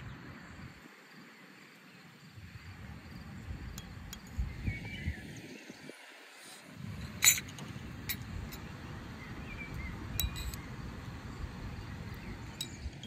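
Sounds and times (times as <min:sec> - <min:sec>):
metal spoon clinking on glass bowl: 0:10.2 - 0:10.6, 0:12.6 - 0:12.9.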